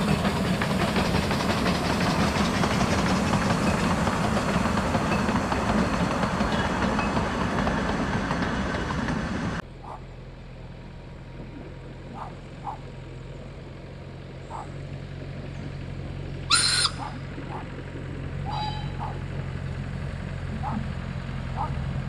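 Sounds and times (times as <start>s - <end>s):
train clatter: 0.0s - 9.6s, 14.5s - 22.0s
railcar engine hum: 0.0s - 22.0s
birds chirping: 9.6s - 10.2s, 11.4s - 21.8s
train whistle blast: 16.5s - 17.0s, 18.4s - 19.1s.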